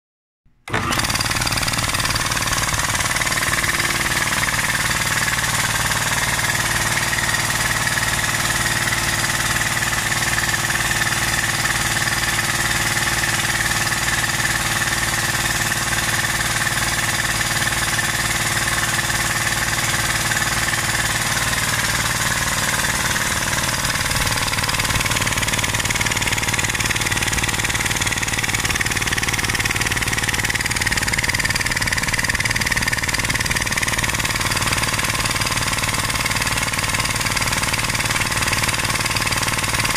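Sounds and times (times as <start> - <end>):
air compressor pump beating: 0.5 - 39.9
electric motor hum: 0.7 - 7.4, 21.2 - 35.8.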